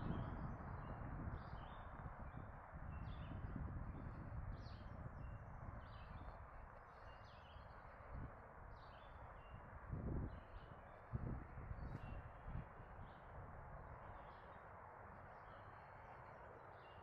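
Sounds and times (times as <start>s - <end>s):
songbirds chirping: 4.6s - 8.1s, 8.7s - 11.1s, 14.0s - 17.0s.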